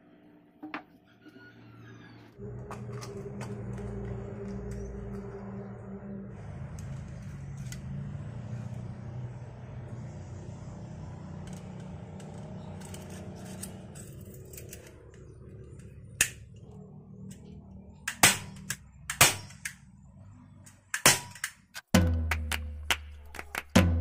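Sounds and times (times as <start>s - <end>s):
low rumble: 2.4s - 19.0s.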